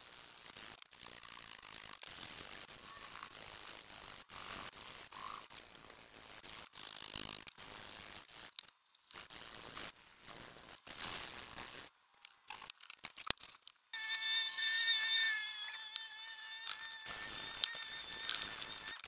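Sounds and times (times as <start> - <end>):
sandpaper rubbing wood: 14.0 - 19.0
steady high whine: 14.0 - 19.0.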